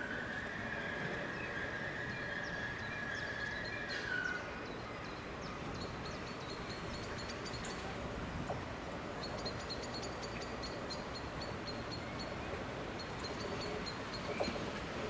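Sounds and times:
train wheels squealing on rail: 0.0 - 4.6
low train rumble: 0.0 - 15.0.

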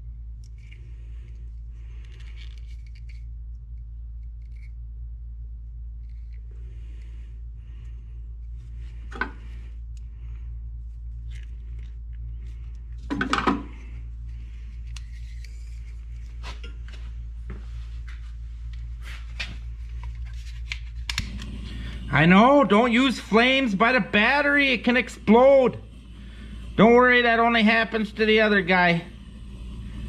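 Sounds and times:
steady low hum: 0.0 - 30.0
wire crimpers clicking and scraping: 10.9 - 17.1, 18.0 - 21.7.

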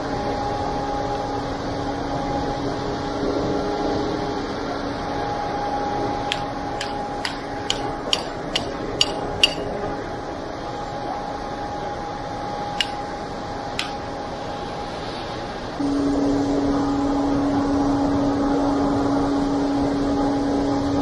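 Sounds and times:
hammer tapping on metal clamp: 6.3 - 9.7, 12.8 - 13.0, 13.8 - 14.0.

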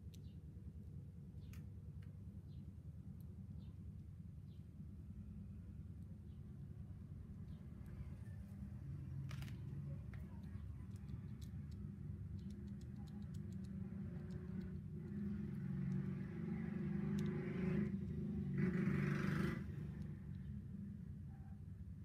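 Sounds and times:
low background rumble: 0.0 - 18.7
plastic figure joints clicking: 9.3 - 15.3.

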